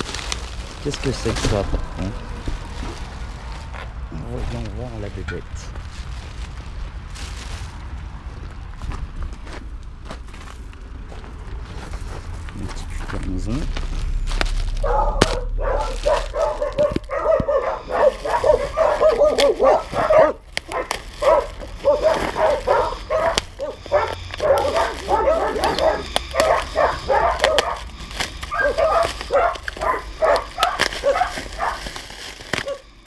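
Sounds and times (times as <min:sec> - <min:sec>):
bubble wrap crinkling: 0:00.0 - 0:08.4, 0:13.0 - 0:33.0
dog yapping and whining: 0:14.8 - 0:33.0.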